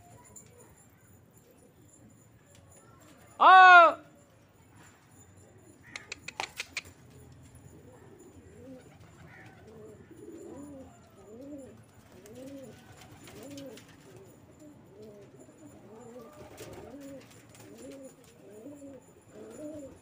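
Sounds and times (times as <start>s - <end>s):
pigeons cooing: 5.5s - 20.0s
sharp clicks: 5.9s - 6.9s.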